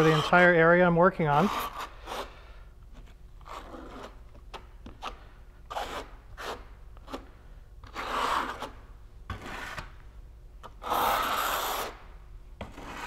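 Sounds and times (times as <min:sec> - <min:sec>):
trowel scraping through mortar: 0:00.0 - 0:00.6, 0:07.9 - 0:09.9, 0:10.8 - 0:12.0.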